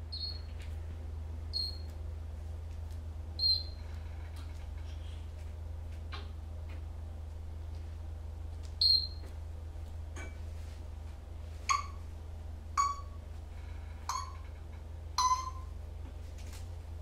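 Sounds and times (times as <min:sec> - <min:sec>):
steady low hum: 0:00.0 - 0:17.0
parrot squeaking: 0:00.1 - 0:00.5, 0:01.6 - 0:01.9, 0:03.4 - 0:03.8, 0:08.8 - 0:09.2.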